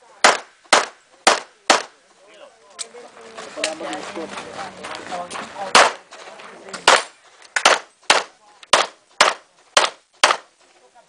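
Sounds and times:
handgun shots: 0:00.2 - 0:01.9, 0:06.8 - 0:10.5.

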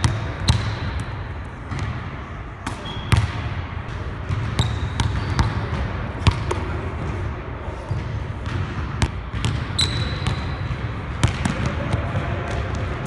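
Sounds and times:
sneaker squeaks: 0:02.7 - 0:03.3, 0:04.3 - 0:05.8, 0:09.4 - 0:10.8
basketball bouncing on hardwood floor: 0:04.3 - 0:06.4, 0:07.9 - 0:09.7.

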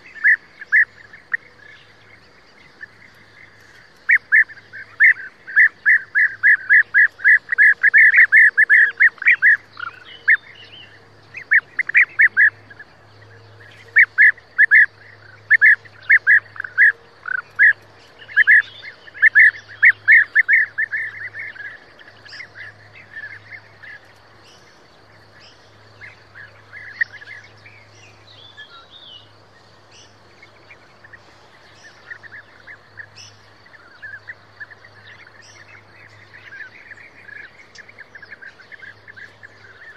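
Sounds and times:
birds calling: 0:00.0 - 0:39.9.

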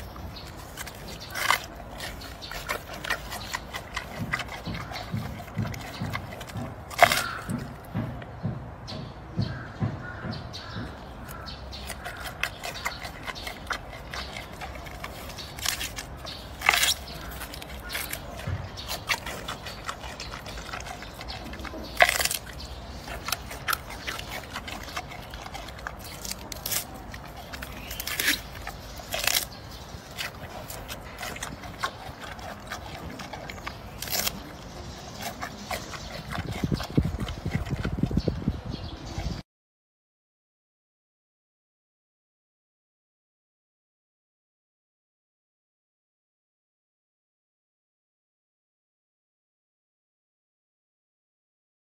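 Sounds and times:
panda chewing bamboo: 0:00.0 - 0:08.2, 0:10.9 - 0:39.4.

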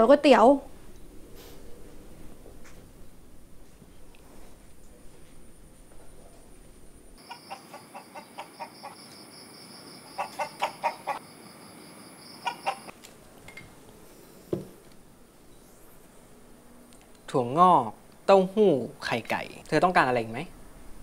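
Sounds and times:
chickens clucking: 0:07.2 - 0:09.2, 0:10.1 - 0:11.3, 0:12.3 - 0:12.9
dull thump: 0:14.5 - 0:14.8.

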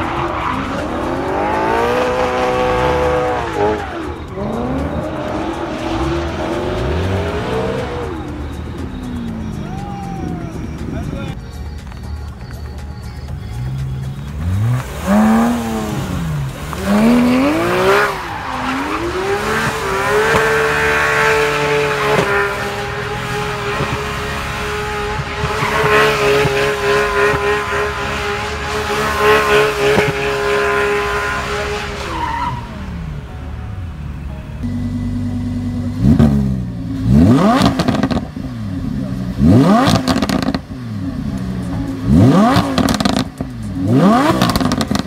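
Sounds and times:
sports car engine revving: 0:00.0 - 0:12.0, 0:13.5 - 0:45.0
tyres squealing: 0:00.0 - 0:33.1.

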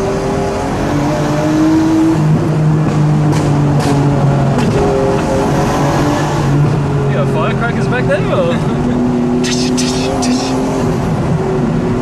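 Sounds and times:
loud car engine: 0:00.0 - 0:12.0.

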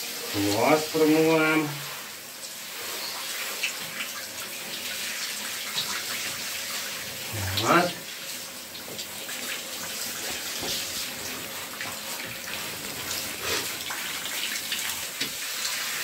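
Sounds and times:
shower water spraying: 0:00.0 - 0:16.0.

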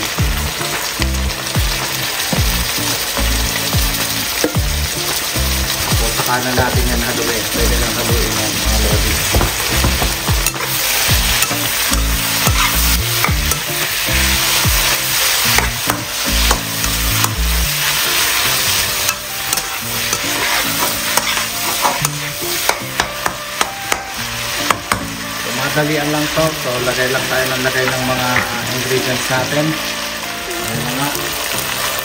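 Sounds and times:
meat sizzling in a wok: 0:00.0 - 0:32.0
metal spatula scraping a pan: 0:09.2 - 0:24.6.

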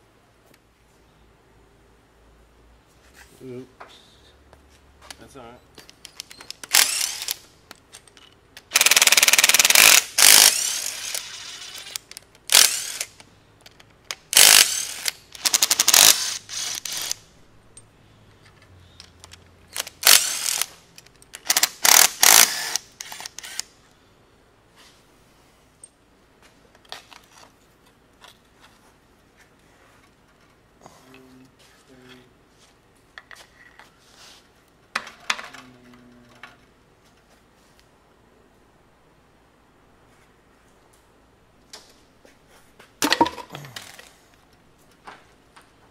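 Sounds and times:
impact drivers rattling bursts: 0:06.5 - 0:07.4, 0:08.6 - 0:13.2, 0:14.1 - 0:17.2, 0:19.7 - 0:20.8, 0:21.4 - 0:23.6.

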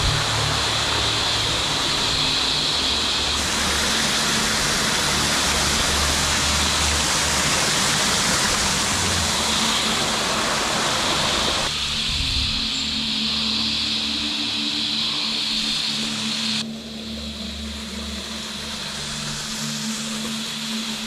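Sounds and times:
creek water rushing over rocks: 0:00.0 - 0:11.8.

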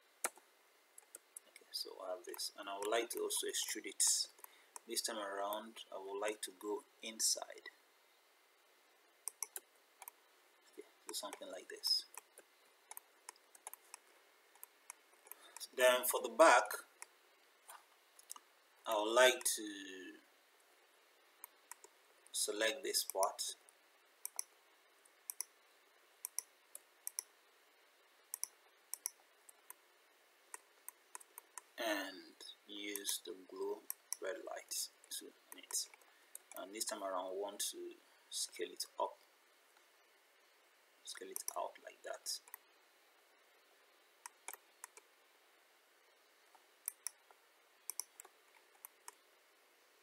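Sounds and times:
low steady hiss: 0:00.0 - 0:50.0
computer mouse clicking: 0:00.2 - 0:00.4, 0:01.0 - 0:01.7, 0:09.2 - 0:10.2, 0:11.1 - 0:15.7, 0:21.4 - 0:22.0, 0:24.2 - 0:24.5, 0:25.3 - 0:25.5, 0:26.2 - 0:27.3, 0:28.3 - 0:29.8, 0:30.5 - 0:31.7, 0:41.3 - 0:41.6, 0:42.4 - 0:42.6, 0:44.2 - 0:45.1, 0:46.5 - 0:47.3, 0:47.9 - 0:49.2.

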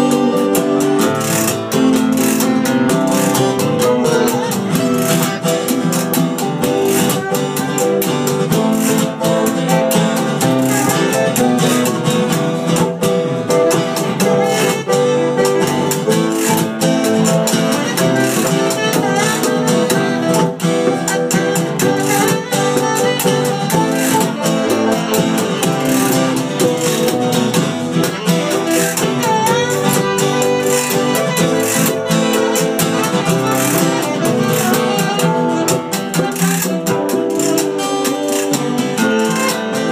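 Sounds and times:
hand drum beat: 0:00.0 - 0:39.9
strummed acoustic guitars: 0:00.0 - 0:39.9.

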